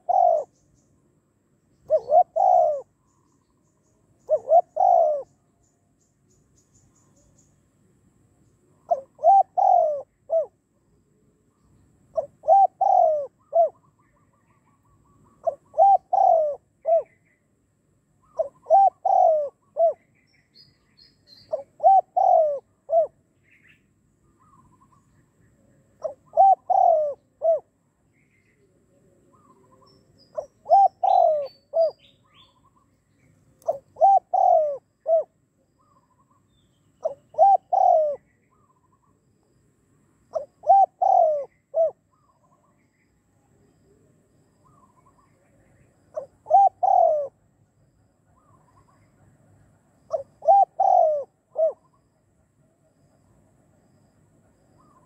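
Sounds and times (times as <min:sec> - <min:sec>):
dove cooing: 0:00.0 - 0:00.6, 0:01.8 - 0:03.0, 0:04.2 - 0:05.5, 0:08.7 - 0:10.6, 0:12.1 - 0:17.2, 0:18.2 - 0:20.1, 0:21.4 - 0:23.2, 0:26.0 - 0:27.8, 0:29.0 - 0:32.8, 0:33.6 - 0:36.0, 0:37.0 - 0:39.2, 0:40.3 - 0:42.8, 0:44.0 - 0:47.5, 0:50.1 - 0:52.1, 0:54.8 - 0:55.0.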